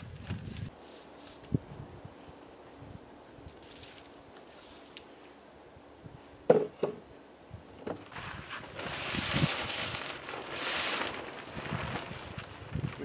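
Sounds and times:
tarp rustling: 0:08.0 - 0:13.0.

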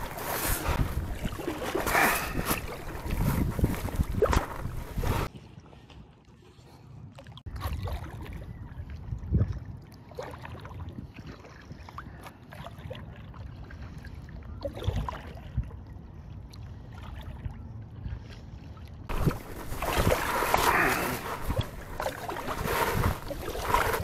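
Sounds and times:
paddle strokes: 0:00.0 - 0:06.9, 0:18.1 - 0:24.0
water splashing around kayak: 0:00.0 - 0:24.0.

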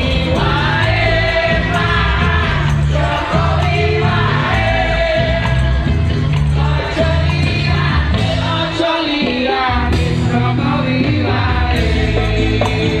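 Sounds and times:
person singing with band: 0:00.0 - 0:13.0
steady bass line: 0:00.0 - 0:13.0.

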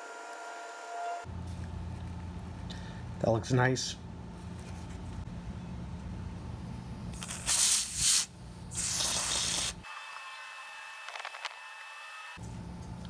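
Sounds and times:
aerosol spray hissing: 0:07.2 - 0:09.8.

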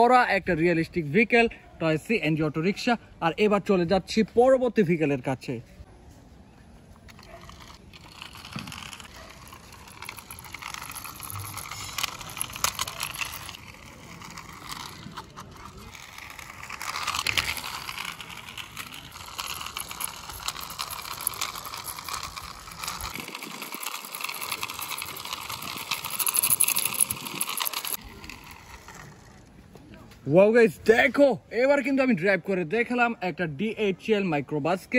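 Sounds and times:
toy wheels rolling over concrete: 0:06.9 - 0:30.2.

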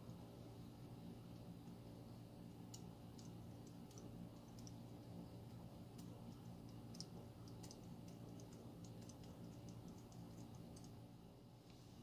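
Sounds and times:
low steady hum: 0:00.0 - 0:12.0
small metallic clicks: 0:02.7 - 0:04.9.

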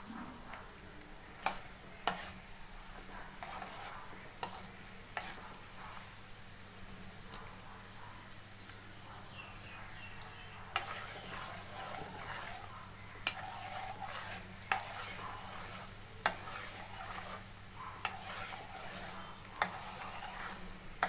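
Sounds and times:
spoon stirring in pan: 0:00.3 - 0:06.2, 0:10.2 - 0:21.0
spices sizzling in hot oil: 0:10.2 - 0:21.0.

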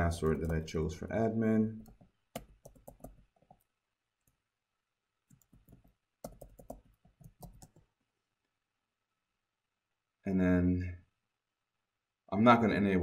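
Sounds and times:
keyboard typing: 0:00.0 - 0:00.8, 0:01.8 - 0:04.4, 0:05.3 - 0:07.9.

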